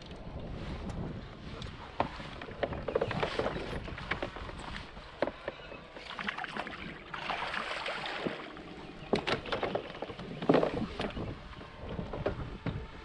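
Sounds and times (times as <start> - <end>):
fish splashing at surface: 6.0 - 8.6.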